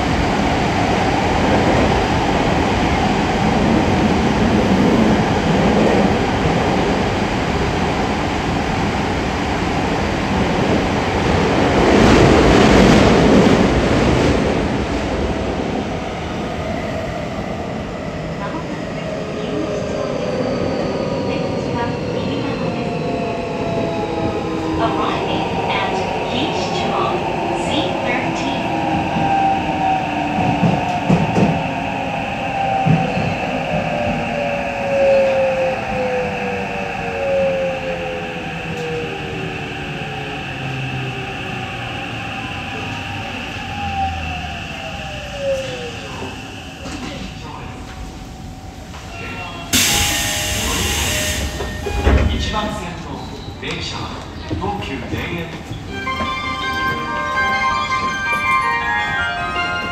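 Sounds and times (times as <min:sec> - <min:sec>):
subway train wheels rumbling: 0:00.0 - 0:59.9
wheels rumbling on rail: 0:38.2 - 0:59.9.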